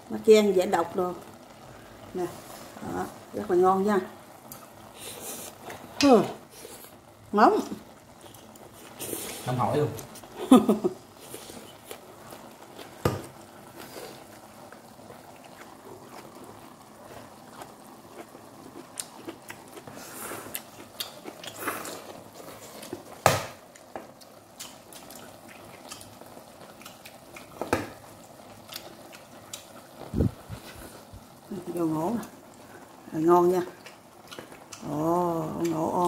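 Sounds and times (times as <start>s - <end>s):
mouth sounds of eating: 33.7s - 36.0s.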